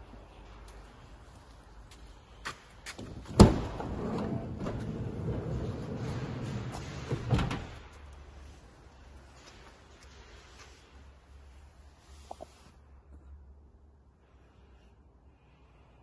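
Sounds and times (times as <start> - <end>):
sliding door running open: 3.3 - 8.3.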